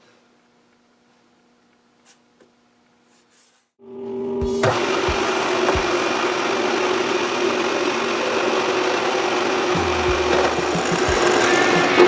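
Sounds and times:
milling machine humming: 4.4s - 12.0s
end mill cutting wood: 4.5s - 12.0s.

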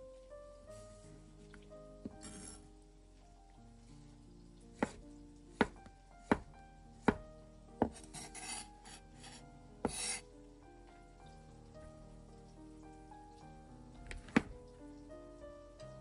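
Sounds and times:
soft background music: 0.0s - 16.0s
knife knocking on wooden board: 5.6s - 6.5s, 7.8s - 8.4s, 14.1s - 14.6s
knife scraping board: 7.8s - 10.2s.

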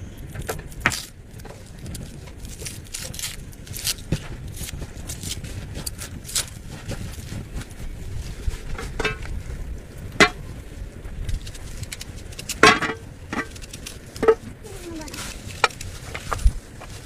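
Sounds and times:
low background rumble: 0.0s - 17.0s
eggshells cracking: 0.5s - 6.6s, 13.4s - 16.4s.

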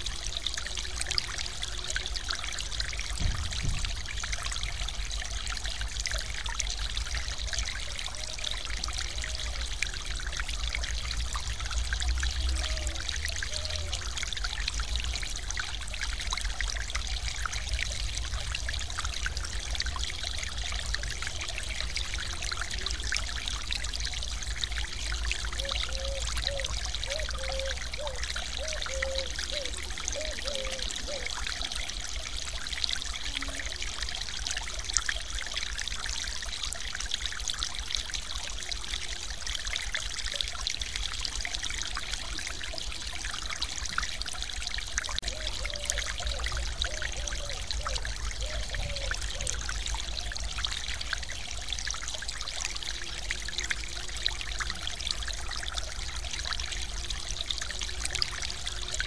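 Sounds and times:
waterfall splashing into pool: 3.0s - 4.8s.

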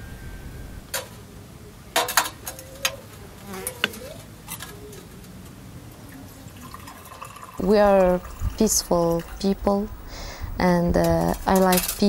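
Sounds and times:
insect buzzing: 2.6s - 4.4s.

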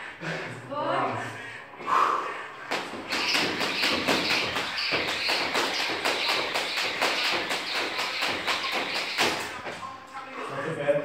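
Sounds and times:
feet landing: 2.7s - 9.8s
jump rope striking floor: 2.7s - 9.8s.

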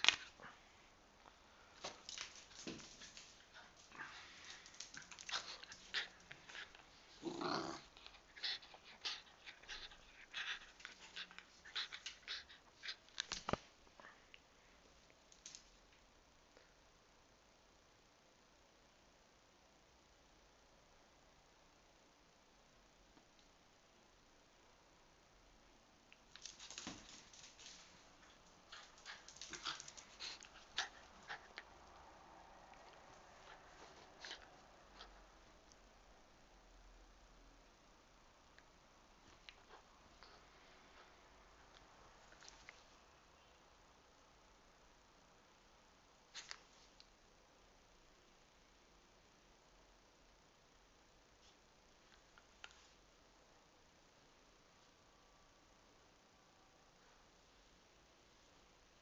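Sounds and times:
dog claws clicking on tiles: 26.3s - 31.6s.

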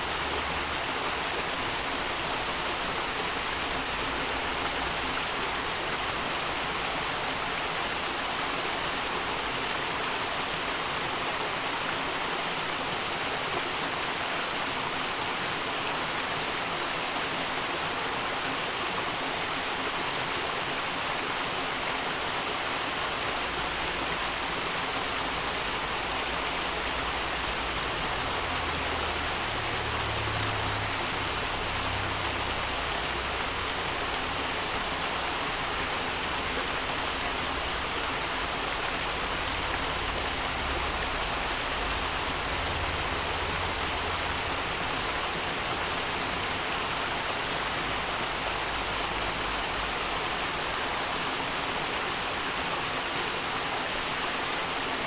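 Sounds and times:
mountain stream rushing: 0.0s - 55.0s.

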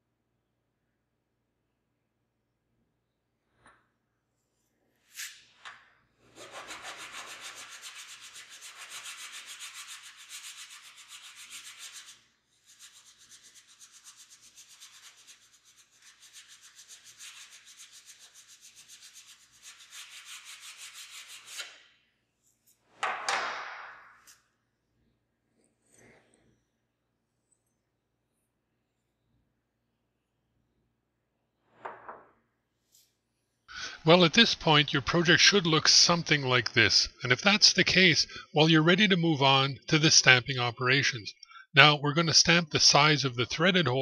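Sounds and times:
filing strokes on metal: 6.3s - 21.7s.

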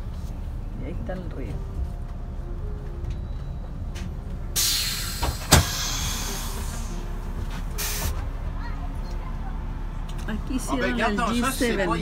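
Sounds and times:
bus idling rumble: 0.0s - 12.0s
compressed air hiss: 4.6s - 7.0s, 7.8s - 8.2s
sharp clunk: 5.2s - 5.8s.

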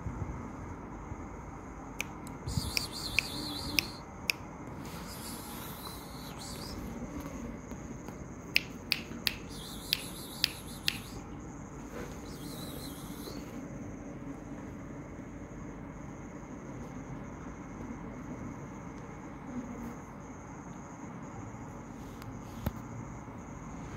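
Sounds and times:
steady low hum: 0.0s - 23.9s
faint high warbling chirp: 2.4s - 4.0s, 4.9s - 6.9s, 9.4s - 11.3s, 12.1s - 13.6s.

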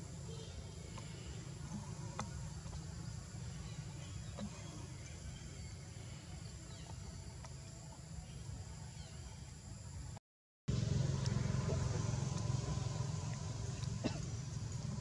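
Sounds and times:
low rumble: 10.7s - 15.0s.

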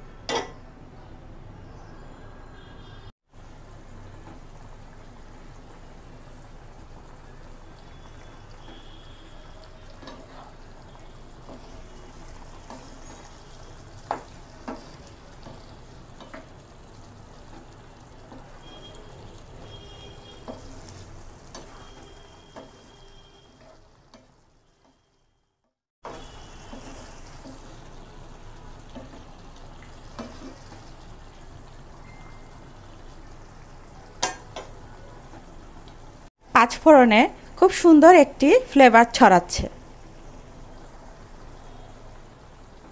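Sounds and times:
food sizzling in a frying pan: 3.3s - 42.9s
wooden spatula stirring: 11.3s - 25.0s, 28.9s - 31.0s.

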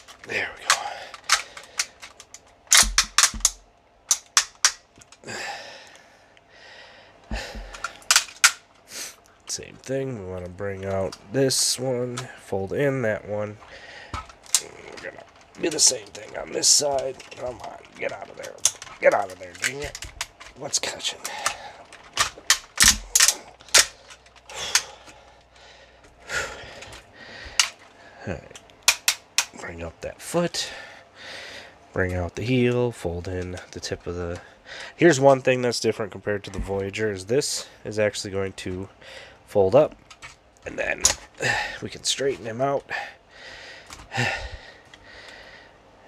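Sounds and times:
plastic toy parts clicking: 0.0s - 5.2s, 7.5s - 8.6s, 14.1s - 20.6s, 21.3s - 24.9s, 28.6s - 29.6s
plastic rustling: 13.4s - 25.7s.

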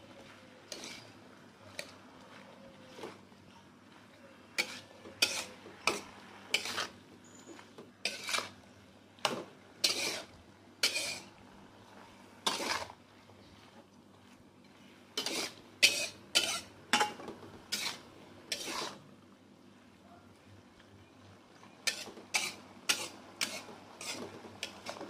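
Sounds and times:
metal spatula scraping a wok: 0.7s - 1.9s, 4.6s - 8.6s, 9.2s - 11.3s, 12.4s - 13.0s, 15.0s - 19.0s, 21.8s - 25.0s.

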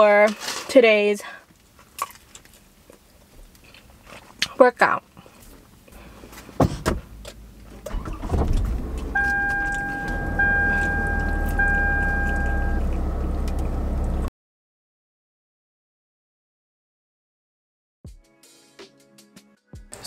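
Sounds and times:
car engine running: 6.1s - 14.3s
car chime tones: 9.0s - 12.9s.

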